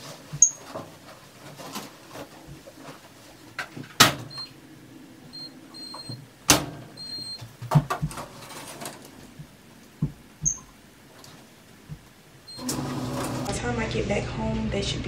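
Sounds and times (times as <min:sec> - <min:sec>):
short high electronic beeps: 0:10.4 - 0:10.7.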